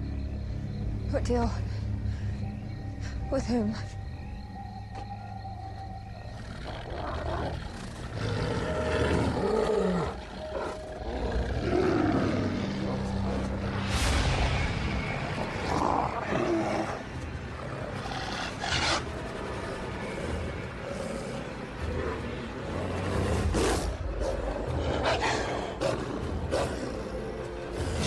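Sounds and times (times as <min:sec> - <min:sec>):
wolves growling: 0:06.1 - 0:13.8, 0:15.4 - 0:28.0.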